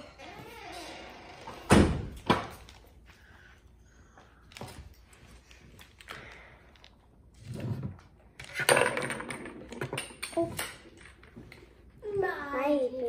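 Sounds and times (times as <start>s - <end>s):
faint clicks and rustles: 2.6s - 8.6s.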